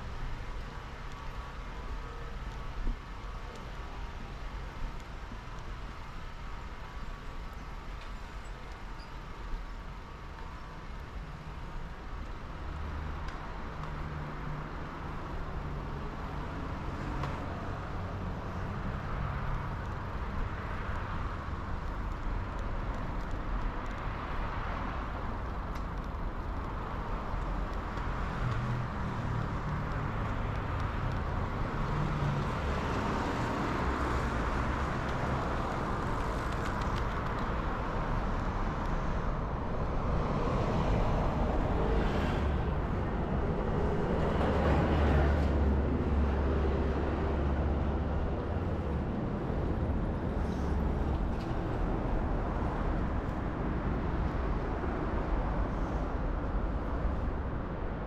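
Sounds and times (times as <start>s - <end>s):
road traffic rumble: 0.0s - 58.0s.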